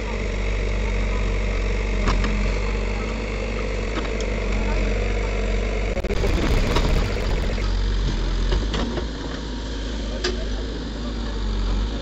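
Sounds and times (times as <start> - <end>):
diesel engine running: 0.0 - 10.0.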